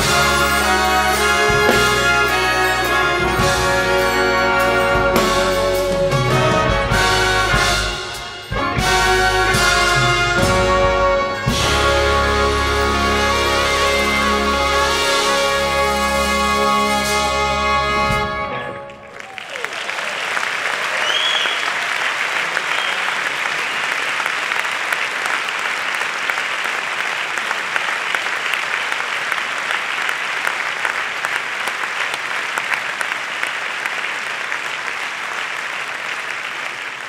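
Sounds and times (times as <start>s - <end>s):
audience applauding: 17.8s - 37.0s
high whistle: 21.0s - 21.7s.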